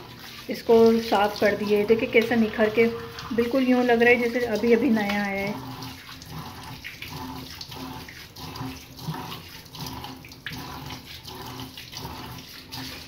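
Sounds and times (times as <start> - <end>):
hands scrubbing sink basin: 0.0 - 13.0
tap running into metal sink: 0.8 - 5.6.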